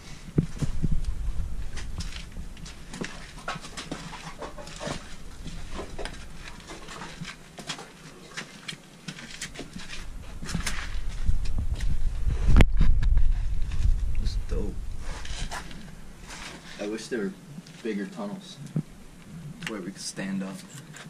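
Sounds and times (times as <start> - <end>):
footsteps crunching over litter and cans: 0.0 - 14.2, 15.0 - 17.1.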